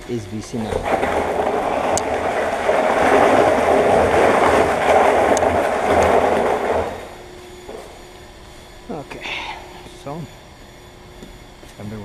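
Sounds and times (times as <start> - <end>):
trash can scraping on concrete: 0.5 - 8.0.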